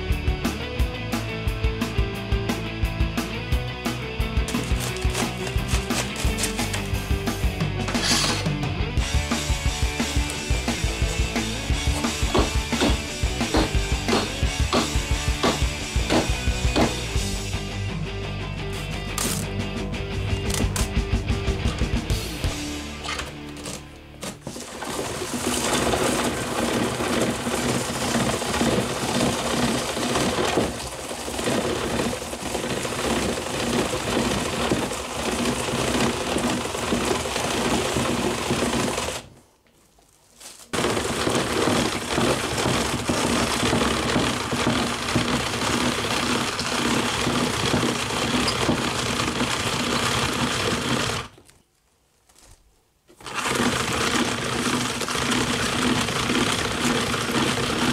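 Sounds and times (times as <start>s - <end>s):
cabbage slicer crunching: 4.4s - 7.1s, 7.9s - 8.5s, 9.4s - 17.1s, 23.2s - 39.3s, 40.2s - 51.5s, 52.3s - 57.9s.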